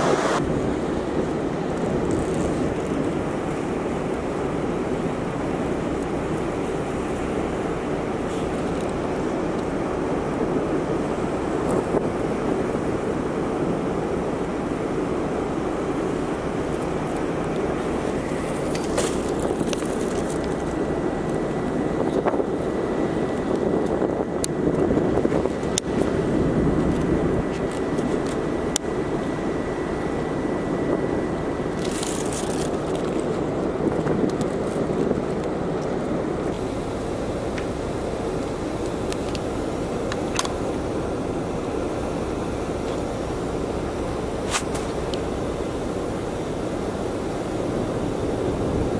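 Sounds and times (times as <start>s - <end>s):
wind rushing: 0.0s - 1.6s
ferry running noise: 0.0s - 48.9s.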